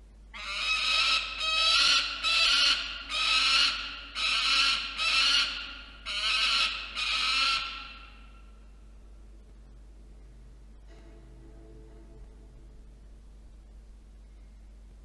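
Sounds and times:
falcon harsh calls: 0.4 - 8.5.

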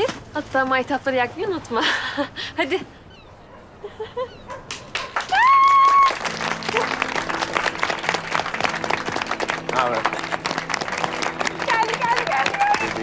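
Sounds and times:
clapping and applause: 4.7 - 13.0
loud high whoop: 5.3 - 6.8
group of people cheering: 5.3 - 7.1.

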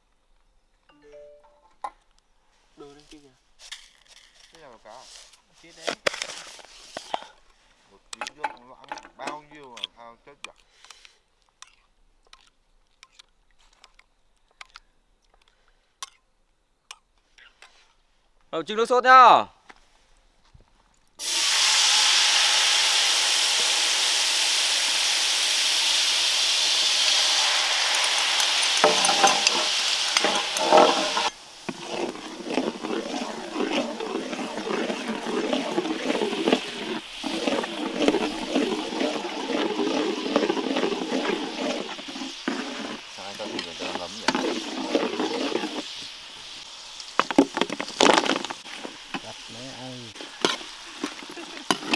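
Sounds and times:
sauce bubbling and crackling: 21.2 - 51.9
sauce hissing in hot pan: 21.2 - 51.9.

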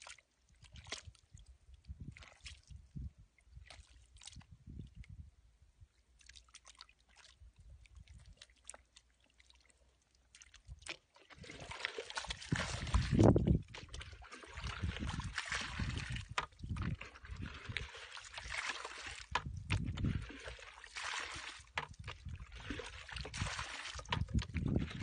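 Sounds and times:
hands squelching in wet mud: 0.0 - 1.4, 2.1 - 2.8, 6.2 - 25.0
small splashes: 0.0 - 1.5, 2.1 - 2.8, 3.5 - 4.5, 6.2 - 25.0
water poured from bucket: 10.7 - 25.0.

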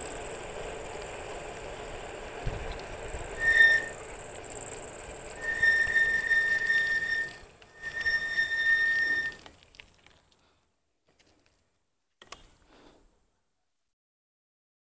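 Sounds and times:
road and wind noise: 0.0 - 8.0
click: 12.2 - 12.5.

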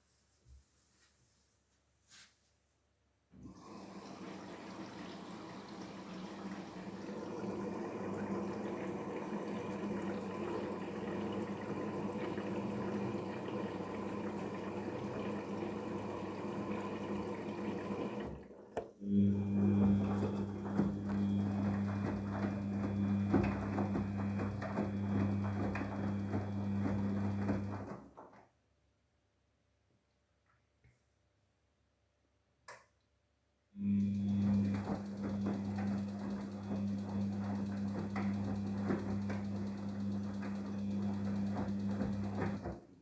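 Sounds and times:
water sloshing in washing machine: 3.4 - 28.2, 33.8 - 43.0.

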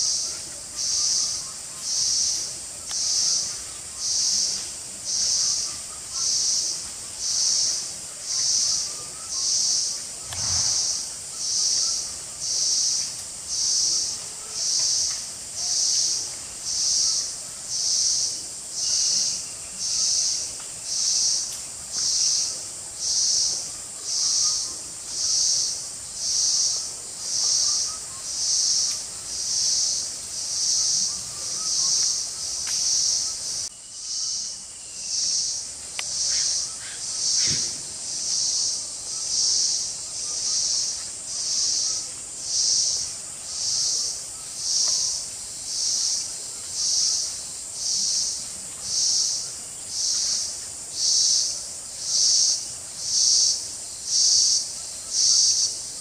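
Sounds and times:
high insect drone: 0.0 - 56.0
brief low thump: 37.4 - 37.8.

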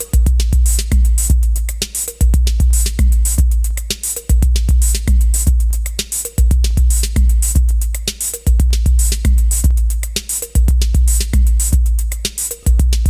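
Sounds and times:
electronic beat: 0.0 - 13.0
deep bass line: 12.7 - 13.0.

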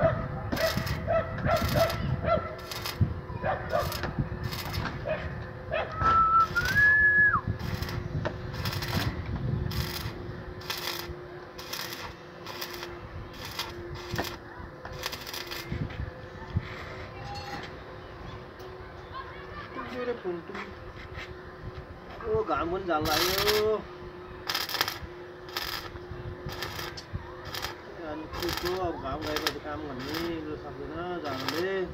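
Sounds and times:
steady hum: 0.0 - 31.9
welding arc crackling and hissing: 0.5 - 3.1, 3.7 - 5.1, 6.1 - 16.8, 22.7 - 23.8, 24.4 - 31.9
rising whistle: 5.9 - 7.5.

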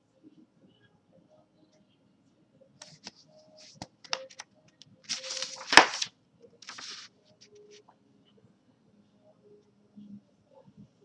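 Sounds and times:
paper rustling and crackling: 2.8 - 4.4, 5.1 - 7.1.

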